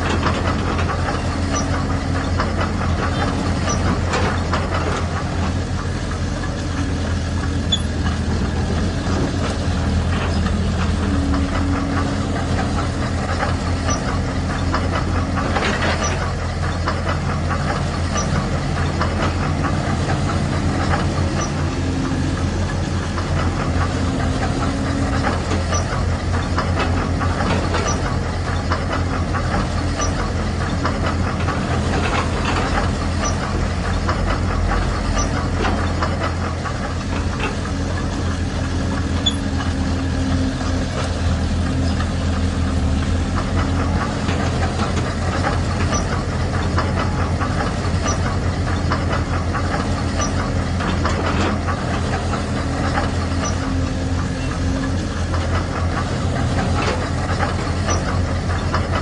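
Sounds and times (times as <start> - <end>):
model diesel engine knocking: 0.0 - 59.0.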